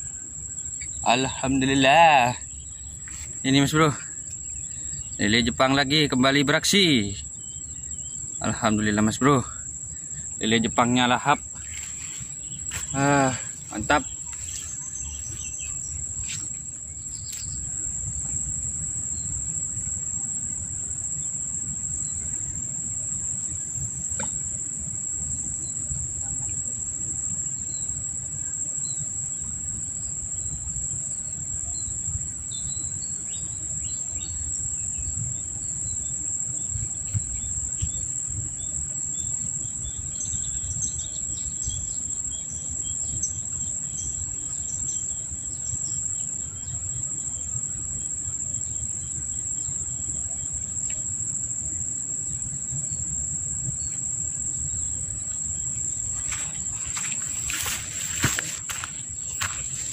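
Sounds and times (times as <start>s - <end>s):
insects droning: 0.0s - 59.9s
wind rumble on microphone: 13.6s - 48.1s.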